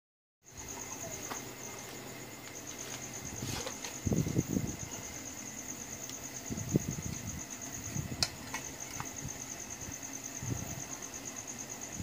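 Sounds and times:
cricket chirping: 0.4s - 12.0s
knocks and rustles of handling: 2.8s - 4.1s.

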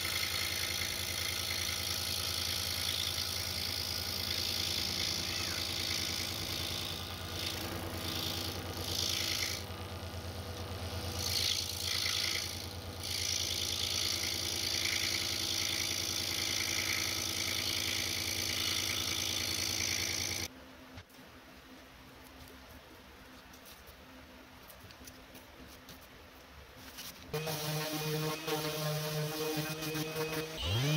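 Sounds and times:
scroll saw cutting wood: 0.0s - 20.5s, 27.3s - 30.9s.

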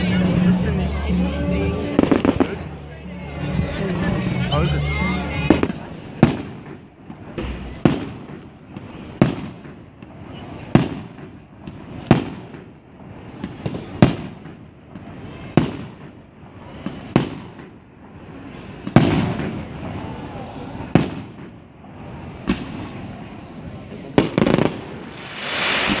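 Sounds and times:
firework shells bursting: 24.2s - 26.0s.

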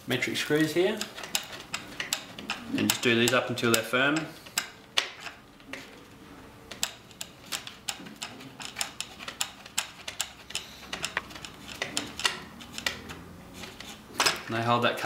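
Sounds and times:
screwdriver clicking and ticking: 1.0s - 5.9s, 6.7s - 13.2s.

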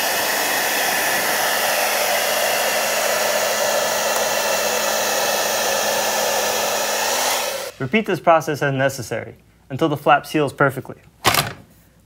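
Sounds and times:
blow dryer running: 0.0s - 8.0s.

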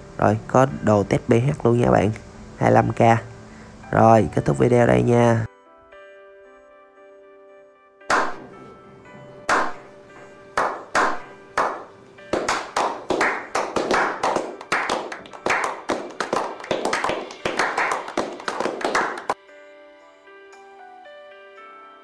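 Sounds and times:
people clapping: 9.5s - 9.8s, 10.6s - 19.4s.

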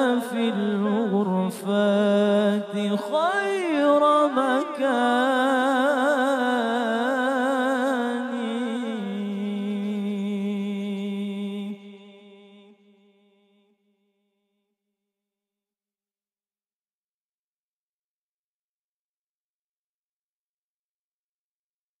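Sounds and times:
man singing unaccompanied: 0.0s - 12.8s.

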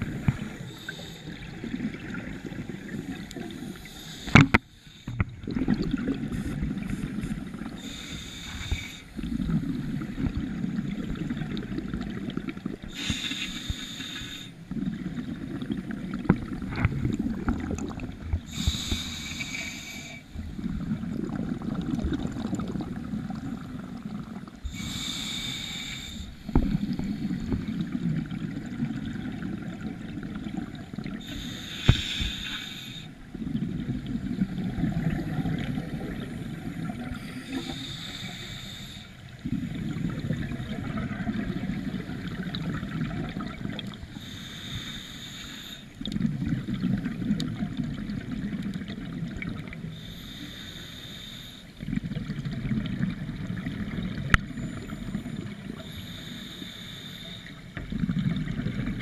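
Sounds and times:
low bubbling of exhaled air: 0.0s - 4.6s, 5.2s - 7.9s, 14.7s - 19.0s, 20.4s - 25.0s
regulator inhalation hiss: 0.3s - 1.5s, 3.1s - 5.2s, 7.8s - 9.2s, 12.9s - 14.6s, 18.5s - 20.4s, 24.6s - 27.6s, 31.2s - 33.2s, 37.1s - 39.2s, 44.2s - 46.0s, 49.9s - 51.8s, 55.8s - 57.7s.

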